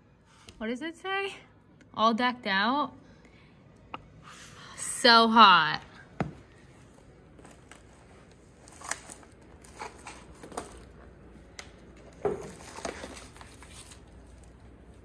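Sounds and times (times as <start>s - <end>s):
photo albums rustling: 6.4s - 15.0s.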